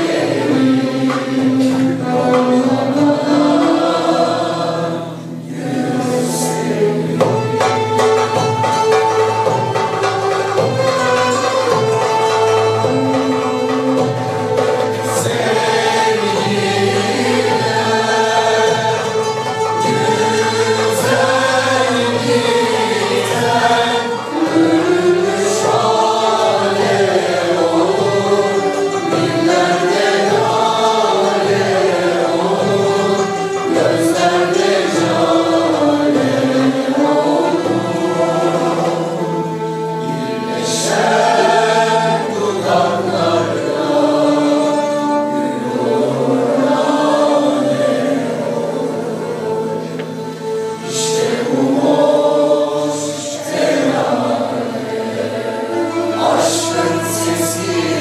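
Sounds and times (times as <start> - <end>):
mixed choir singing: 0.0 - 58.0
traditional string and drum ensemble: 0.0 - 58.0.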